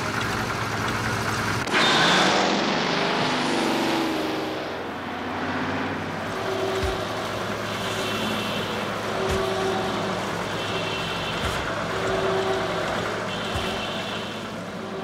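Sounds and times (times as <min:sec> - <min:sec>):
low mechanical hum: 0:06.0 - 0:15.0.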